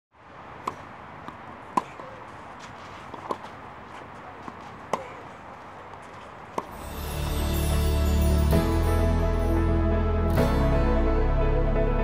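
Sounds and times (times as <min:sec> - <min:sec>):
tennis ball struck by rackets: 0:00.6 - 0:02.4, 0:03.1 - 0:03.6, 0:04.4 - 0:05.3, 0:06.5 - 0:06.7.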